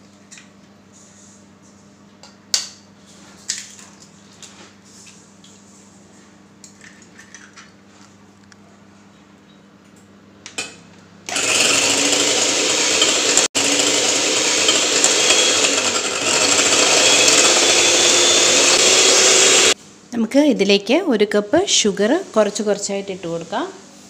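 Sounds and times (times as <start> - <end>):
electric hand mixer whirring: 11.3 - 19.8.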